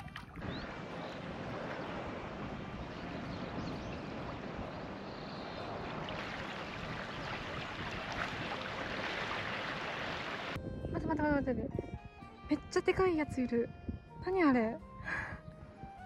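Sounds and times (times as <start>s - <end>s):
small waves lapping on sand: 0.0s - 10.6s
wind on microphone: 0.0s - 14.3s.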